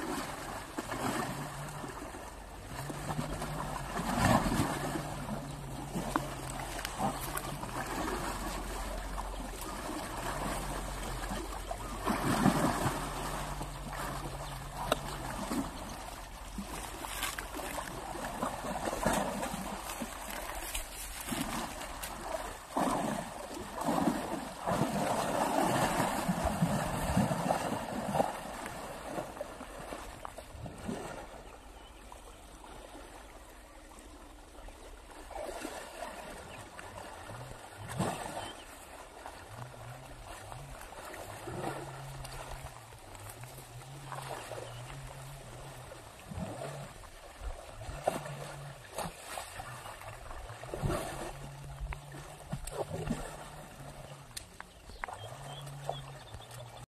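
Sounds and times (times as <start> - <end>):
water sloshing and splashing: 0.0 - 56.9.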